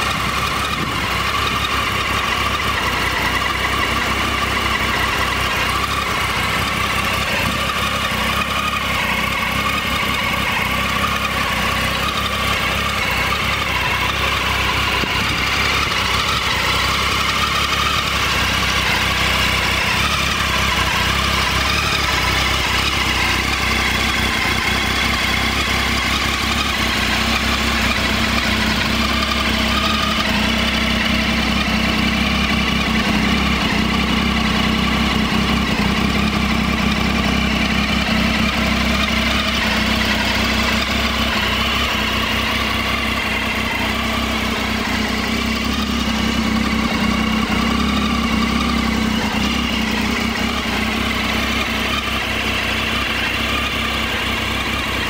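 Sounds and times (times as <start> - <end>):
motorcycle engine idling: 0.0 - 55.0.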